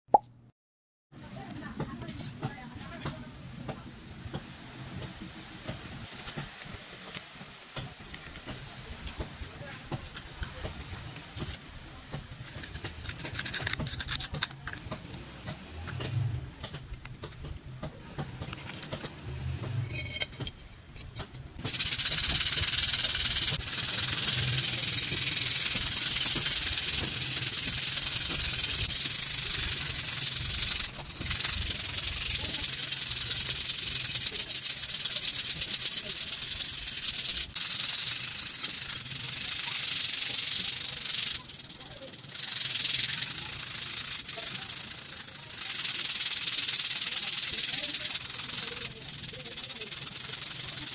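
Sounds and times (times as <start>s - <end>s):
handling sounds: 6.0s - 39.4s
sandpaper rasping on metal: 21.6s - 50.9s.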